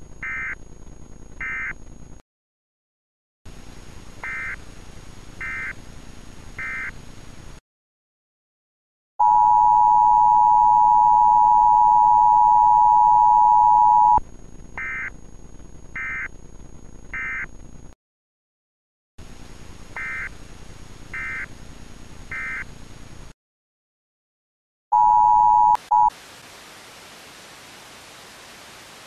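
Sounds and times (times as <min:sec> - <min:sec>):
two-tone alert signal: 0:09.2 - 0:14.2, 0:25.0 - 0:26.1.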